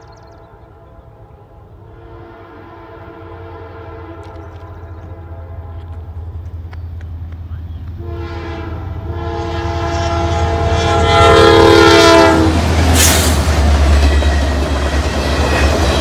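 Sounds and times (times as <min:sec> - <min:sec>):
locomotive horn blowing: 0:01.0 - 0:06.1, 0:08.0 - 0:13.1.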